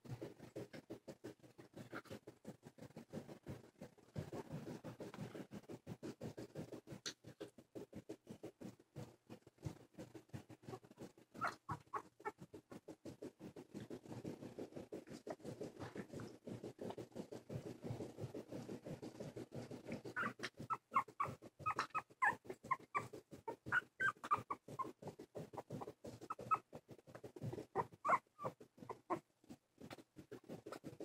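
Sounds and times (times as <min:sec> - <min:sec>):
puppies scratching on carpet: 0:00.0 - 0:31.0
high puppy squeaks: 0:11.4 - 0:12.8, 0:20.0 - 0:29.2.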